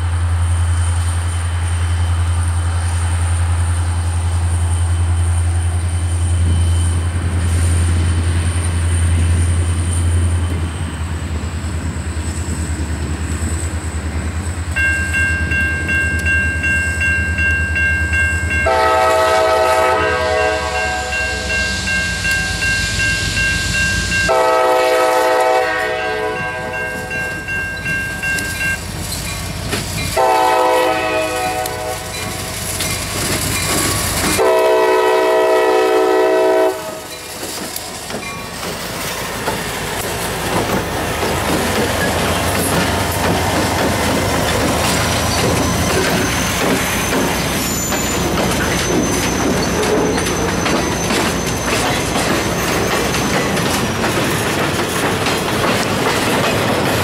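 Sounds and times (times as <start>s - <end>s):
locomotive air horn blasts: 18.6s - 22.6s, 24.2s - 27.2s, 30.2s - 32.2s, 34.4s - 37.1s
train wheels clattering over rail: 28.4s - 30.8s, 31.6s - 34.8s, 37.2s - 57.0s.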